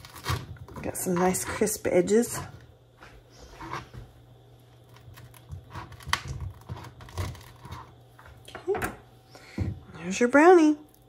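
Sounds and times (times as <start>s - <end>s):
knife crunching through baked edges: 0.0s - 2.5s, 4.8s - 8.1s.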